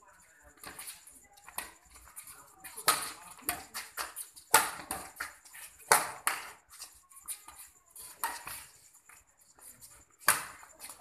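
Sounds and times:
rackets hitting shuttlecock: 0.6s - 6.9s, 7.5s - 8.7s, 10.2s - 11.0s.

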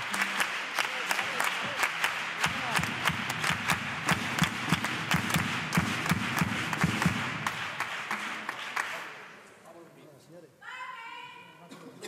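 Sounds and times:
audience applauding: 0.0s - 9.4s
low rhythmic thuds: 2.2s - 8.6s.

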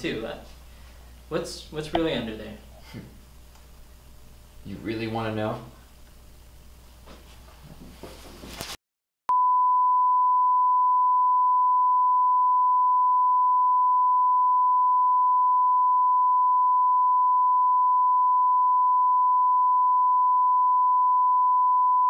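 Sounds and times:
steady test tone beep: 9.3s - 22.0s.

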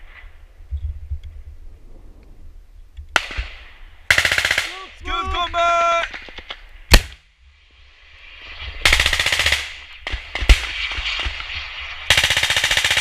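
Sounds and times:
automatic gunfire bursts: 4.1s - 4.8s, 12.1s - 13.0s
loud single gunshots: 6.0s - 7.2s.

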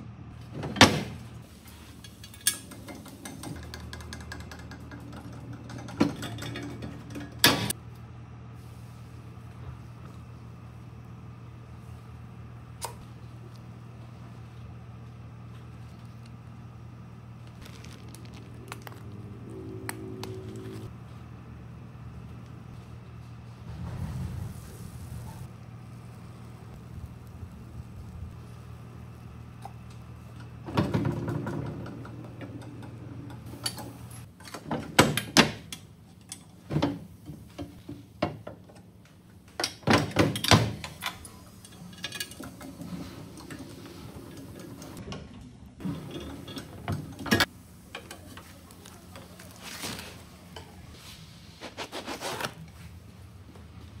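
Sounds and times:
steady low hum: 0.0s - 34.5s.

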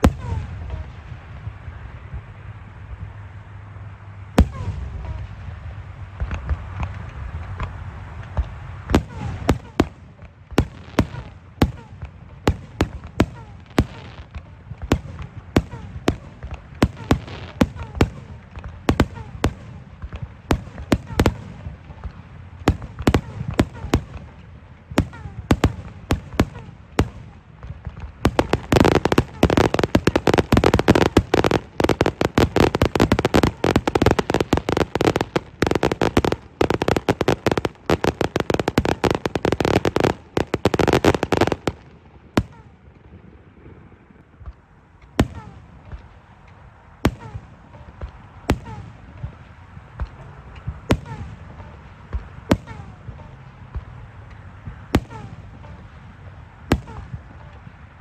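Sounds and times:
fireworks bangs and crackling: 0.0s - 3.5s, 4.3s - 58.0s
single sharp firework reports: 8.4s - 43.8s.

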